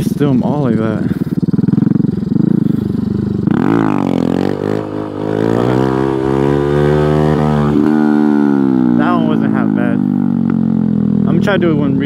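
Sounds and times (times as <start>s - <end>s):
motorcycle engine accelerating: 0.0s - 12.0s.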